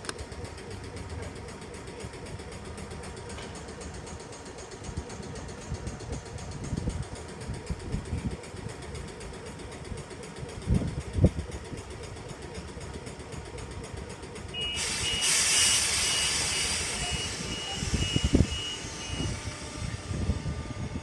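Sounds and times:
electronic warning beeps: 14.5s - 20.0s
hiss of released air: 14.6s - 19.5s.

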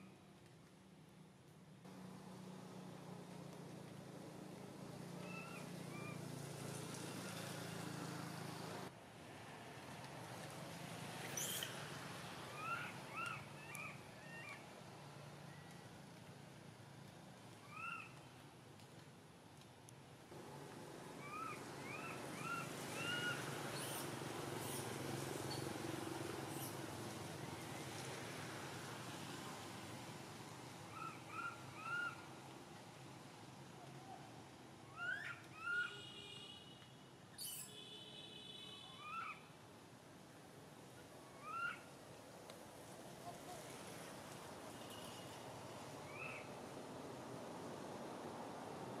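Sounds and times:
baby monkey squealing calls: 11.4s - 11.7s, 12.6s - 14.5s, 21.2s - 24.9s, 26.5s - 26.8s, 30.9s - 32.2s, 34.9s - 35.9s, 37.4s - 37.7s, 39.0s - 39.4s, 41.4s - 41.8s.

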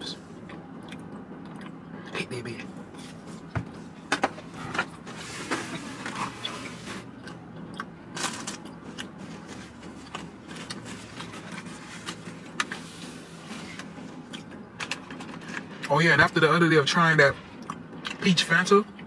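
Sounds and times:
chewing crispy pizza: 0.4s - 2.3s, 5.7s - 15.9s, 17.3s - 19.0s.

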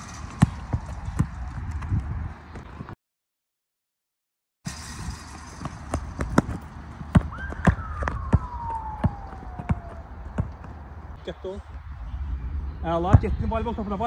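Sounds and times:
basketball bouncing on ground: 0.0s - 2.9s, 5.4s - 10.9s
whistle-like tone sliding down: 7.4s - 9.6s.

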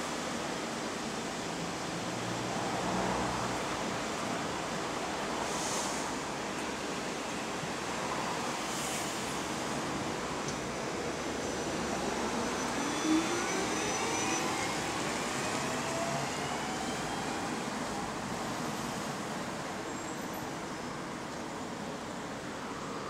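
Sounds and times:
road traffic noise: 0.0s - 23.0s
electric bus motor whine: 9.7s - 19.5s.

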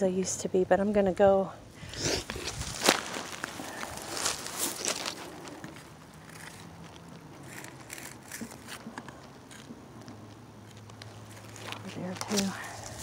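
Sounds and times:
brush crackling and rustling: 2.0s - 13.0s
footsteps crunching through dry grass: 2.1s - 7.1s, 11.0s - 13.0s.

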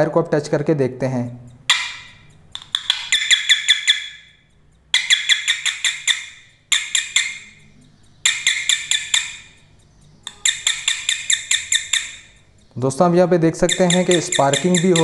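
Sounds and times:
buzzer sharp chirps: 1.7s - 12.6s, 13.5s - 15.0s.

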